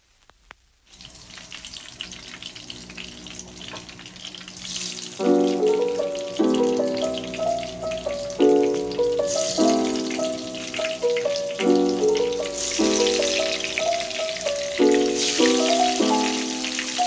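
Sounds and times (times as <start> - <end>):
batter sizzling in hot oil: 0.8 - 17.0
piano music: 4.0 - 17.0.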